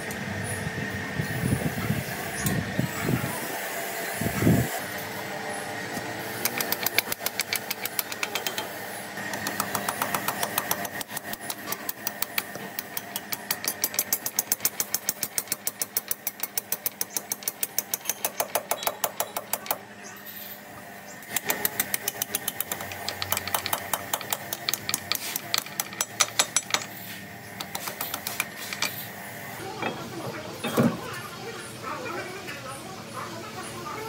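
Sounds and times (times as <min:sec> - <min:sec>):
machine knocking rhythmically: 0:06.4 - 0:08.6, 0:09.2 - 0:19.8, 0:21.3 - 0:26.8.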